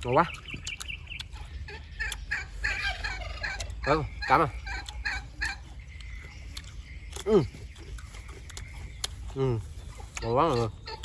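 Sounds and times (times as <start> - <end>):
fowl calling: 1.6 - 7.3.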